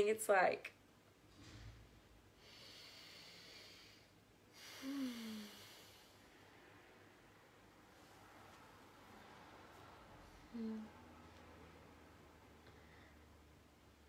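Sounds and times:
person breathing: 2.3 - 6.6, 12.6 - 13.4
falling vocal sigh: 4.6 - 6.0.

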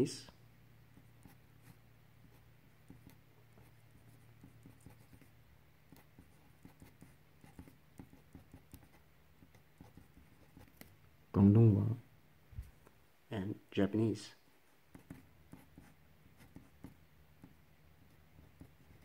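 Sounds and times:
pen scratching on paper: 0.9 - 10.9, 14.9 - 19.0.

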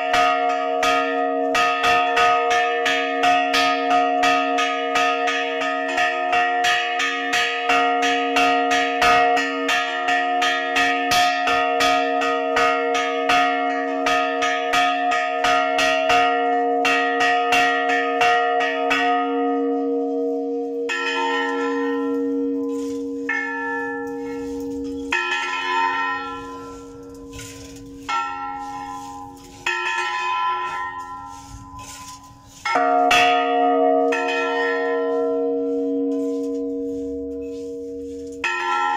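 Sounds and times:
large church bell ringing: 0.0 - 38.9.

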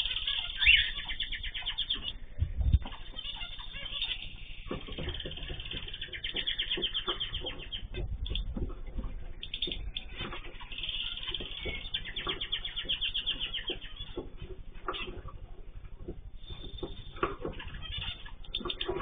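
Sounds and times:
fast bird trilling: 0.0 - 8.4
small birds chirping: 0.0 - 19.0.

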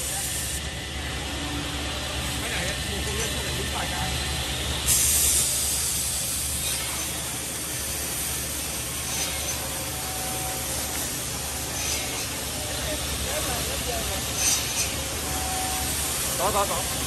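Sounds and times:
machine humming: 0.8 - 17.0
loud hiss: 4.9 - 17.0.

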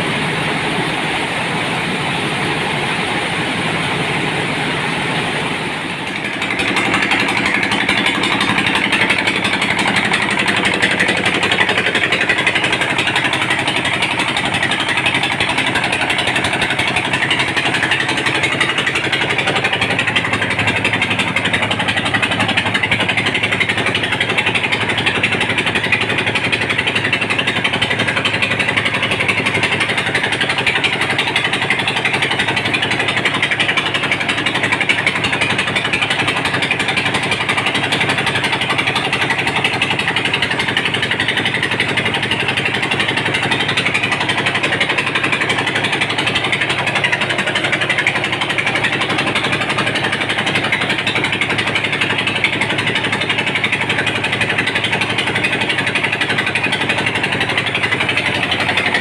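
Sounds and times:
machine hum: 0.0 - 33.2
rice milling machine running: 0.0 - 59.0.

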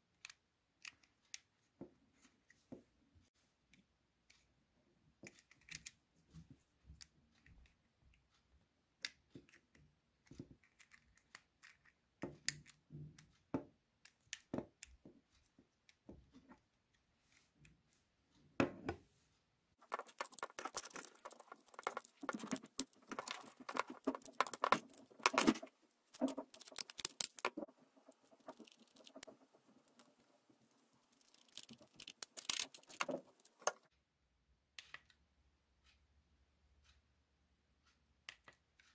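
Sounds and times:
plastic parts clicking: 9.0 - 13.3, 19.8 - 33.9.

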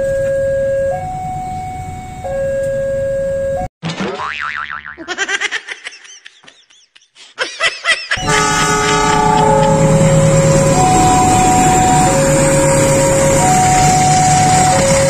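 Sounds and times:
cartoon boing sound effects: 3.8 - 5.1
passing diesel train rumble: 8.2 - 15.0
train horn: 8.2 - 15.0.

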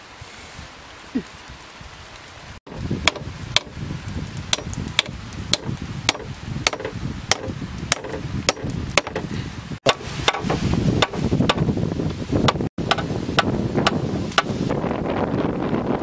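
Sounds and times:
tool chopping bamboo: 2.7 - 3.8, 4.5 - 11.7, 12.4 - 14.6.

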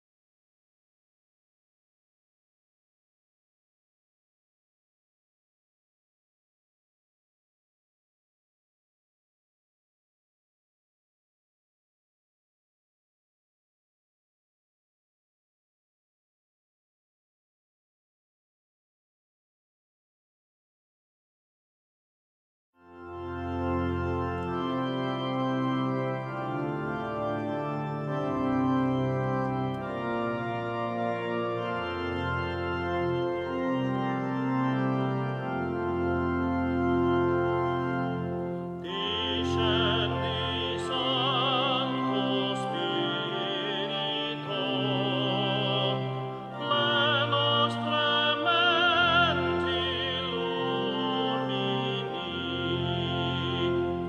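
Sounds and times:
organ playing held chords: 22.8 - 54.0.

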